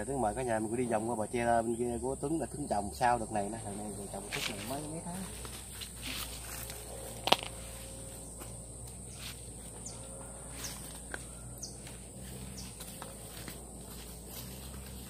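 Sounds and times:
insects droning: 0.0s - 15.0s
light footsteps: 4.0s - 15.0s.

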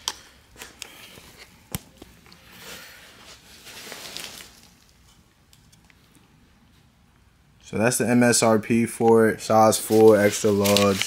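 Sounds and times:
plastic wrapping rustling: 0.2s - 5.2s, 9.6s - 11.0s.

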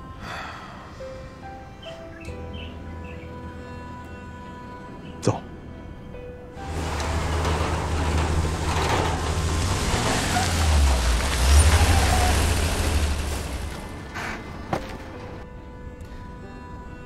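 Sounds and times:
heavy trucks driving past: 6.6s - 15.5s.

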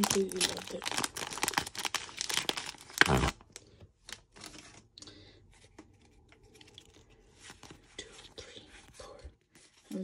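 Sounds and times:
foil wrapper crinkling: 0.0s - 4.9s.

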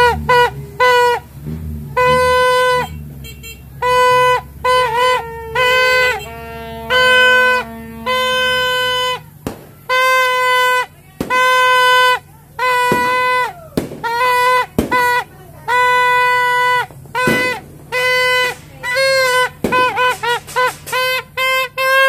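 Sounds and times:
party horns honking: 0.0s - 22.0s
sharp pops: 6.9s - 11.8s, 12.8s - 15.4s, 16.8s - 22.0s.

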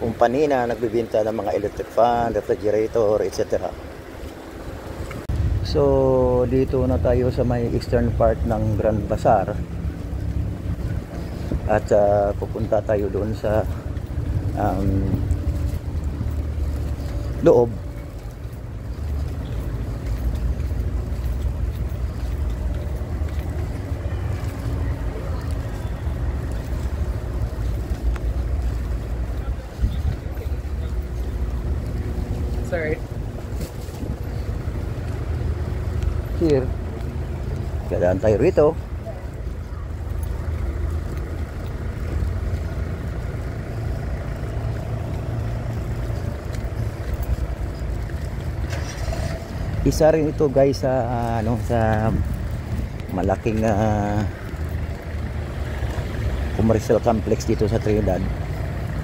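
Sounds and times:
wind buffeting microphone: 9.6s - 12.6s, 13.7s - 35.2s.

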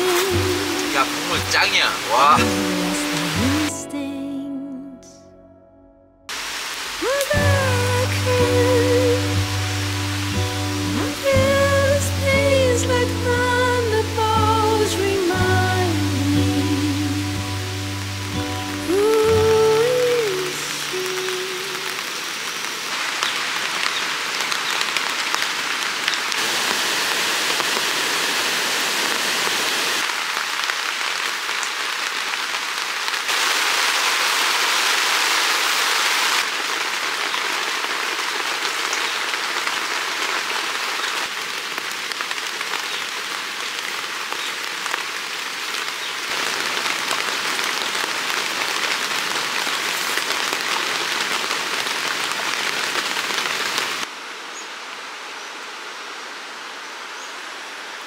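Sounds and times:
rain on tent fabric: 0.0s - 3.8s, 6.3s - 58.0s.

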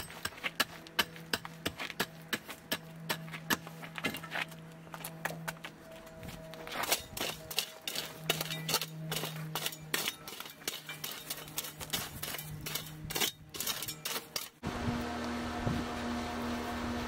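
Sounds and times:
shovel scraping through gravel: 6.3s - 14.6s.

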